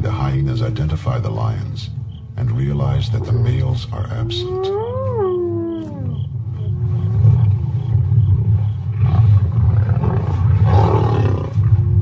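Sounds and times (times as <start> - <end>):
lion calls: 0.0 - 12.0
lions growling: 2.7 - 12.0.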